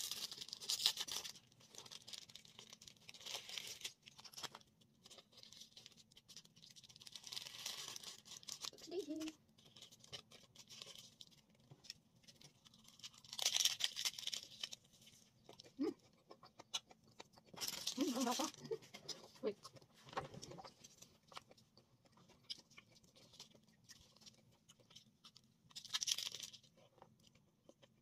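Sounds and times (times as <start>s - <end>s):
wrapper crinkling: 0.0s - 15.2s, 17.5s - 18.8s, 25.7s - 26.7s.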